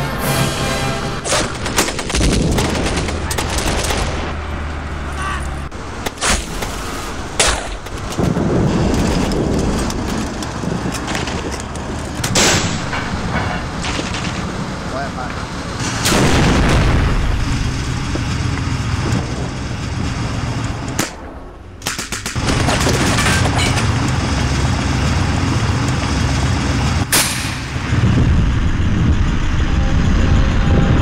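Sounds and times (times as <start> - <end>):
sharp bangs: 0.0 - 4.8, 5.8 - 24.1, 26.9 - 30.9
low tank rumble: 0.0 - 31.0
tank gun blast: 0.7 - 4.5, 12.2 - 14.8, 15.8 - 24.0, 27.0 - 29.4
gunfire: 1.2 - 4.4, 7.4 - 7.8, 21.0 - 23.4.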